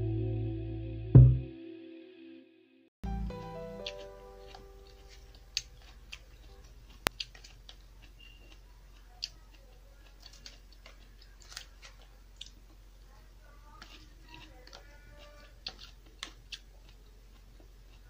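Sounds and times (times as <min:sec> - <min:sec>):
low steady hum: 0:00.0 - 0:01.6.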